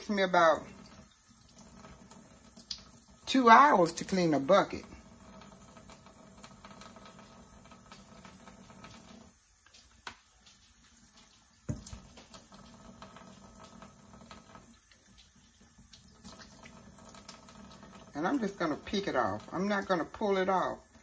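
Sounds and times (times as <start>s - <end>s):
wet patter of hands: 9.5s - 12.6s.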